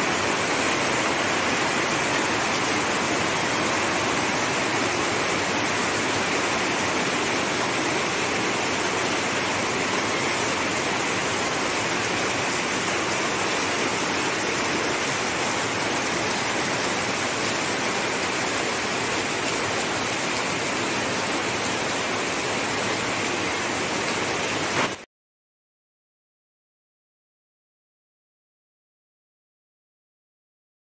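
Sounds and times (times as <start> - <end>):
heavy rain on foliage: 0.0 - 25.0.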